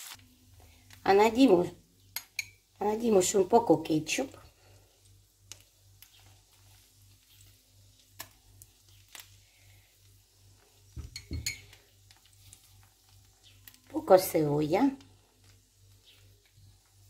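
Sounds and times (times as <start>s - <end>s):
spoon knocking: 2.2s - 2.6s, 11.0s - 11.8s.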